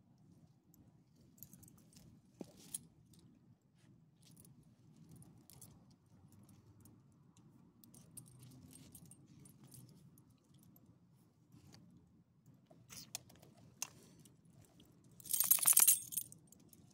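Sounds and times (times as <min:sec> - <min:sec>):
dog leash clip jingling: 0:15.3 - 0:16.2.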